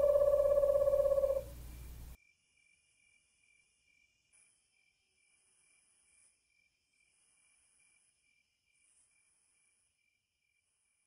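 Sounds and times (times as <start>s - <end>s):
low hiss: 0.0s - 2.2s
insect chirping: 0.0s - 11.0s.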